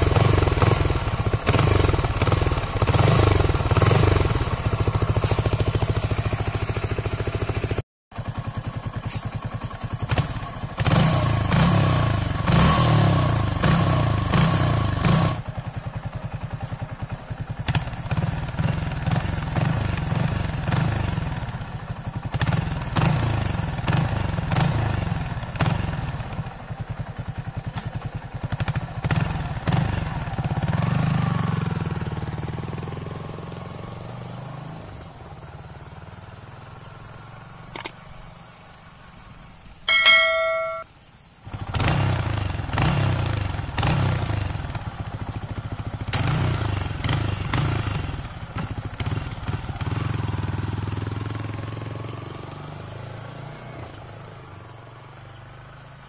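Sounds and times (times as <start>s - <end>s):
motorcycle engine revving: 0.0s - 40.8s, 41.4s - 56.0s.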